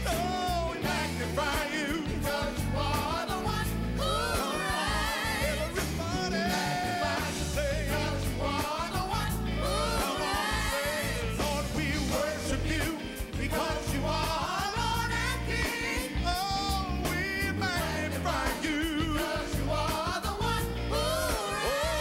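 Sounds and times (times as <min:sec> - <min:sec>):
drums: 0:00.0 - 0:22.0
gospel singing: 0:00.0 - 0:22.0
low bass line: 0:00.0 - 0:22.0.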